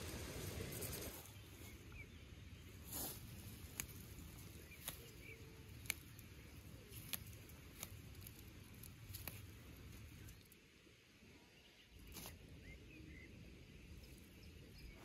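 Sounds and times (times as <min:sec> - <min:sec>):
rustling of leaves and grass: 0:00.0 - 0:10.9, 0:11.6 - 0:15.0
stems snapping: 0:02.9 - 0:10.6, 0:12.0 - 0:12.4.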